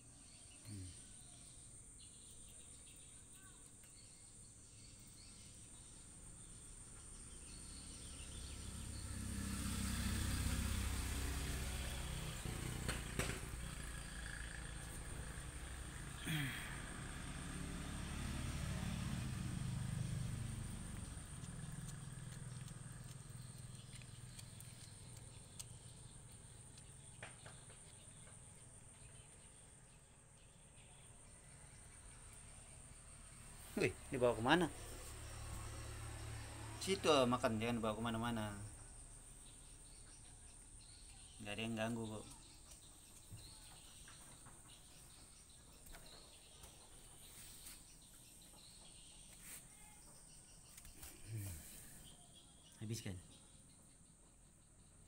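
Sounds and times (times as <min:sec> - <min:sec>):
faint chirps: 0:00.0 - 0:55.0
cat chewing soft clicks: 0:20.9 - 0:27.8.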